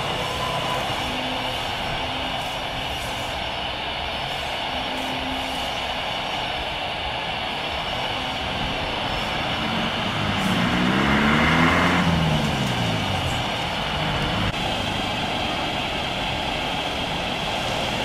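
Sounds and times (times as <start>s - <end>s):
jet engines landing: 0.0s - 18.0s.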